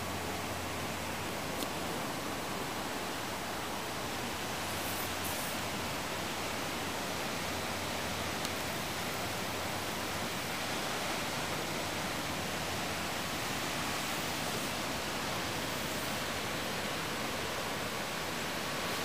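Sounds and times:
river rushing over rocks: 0.0s - 19.0s.

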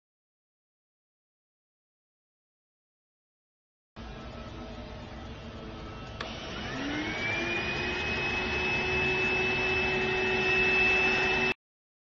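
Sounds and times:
vacuum motor whining: 4.0s - 11.6s.

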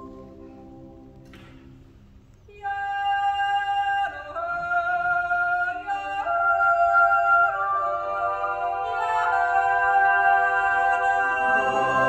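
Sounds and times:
choir singing sustained chords: 0.0s - 1.7s, 4.3s - 12.0s.

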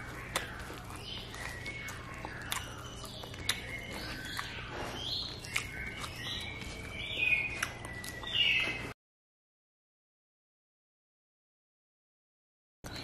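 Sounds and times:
mouth chewing: 0.0s - 8.9s.

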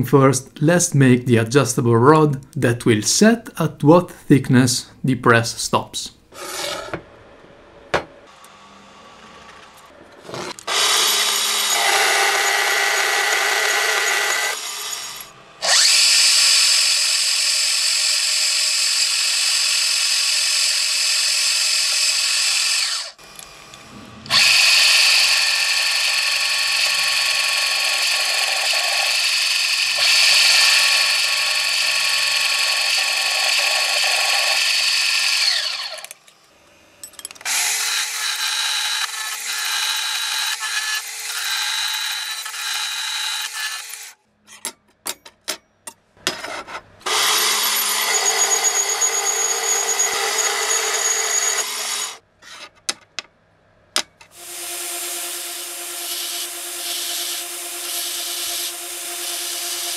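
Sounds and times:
band saw humming: 8.0s - 19.9s, 20.5s - 36.8s, 47.0s - 52.2s, 54.3s - 59.9s
drill press drilling into steel: 10.3s - 36.2s, 37.5s - 44.2s, 47.1s - 52.2s.

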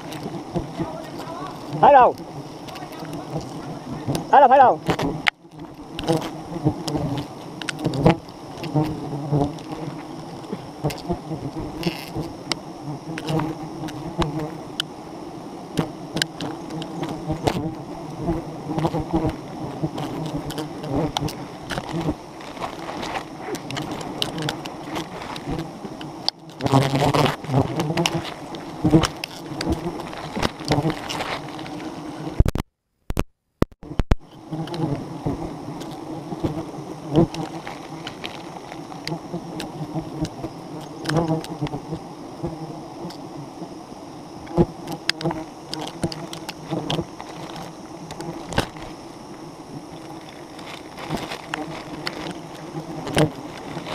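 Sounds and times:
bees buzzing: 0.0s - 32.4s, 33.8s - 53.9s
honeycomb knocks and clicks: 4.9s - 11.2s, 18.8s - 31.8s, 44.5s - 48.9s.

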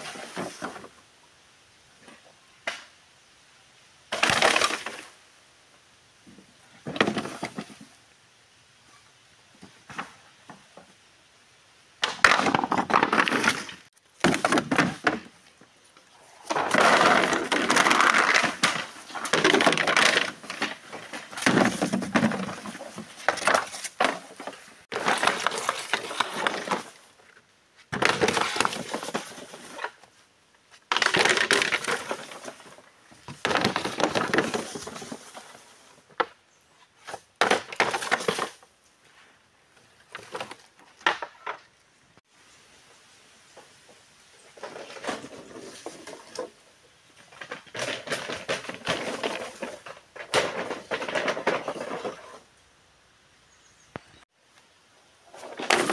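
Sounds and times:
dry bamboo crackling and snapping: 30.9s - 32.6s.

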